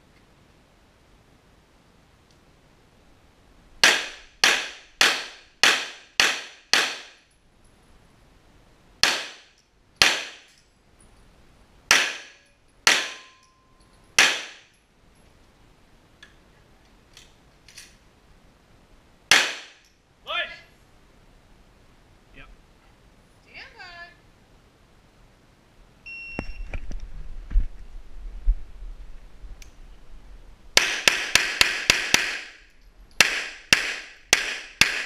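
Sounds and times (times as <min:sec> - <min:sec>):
pistol shots echoing indoors: 0:03.8 - 0:07.3, 0:09.0 - 0:10.6, 0:11.9 - 0:13.5, 0:14.2 - 0:14.8, 0:19.3 - 0:19.9, 0:30.8 - 0:32.6, 0:33.2 - 0:35.0.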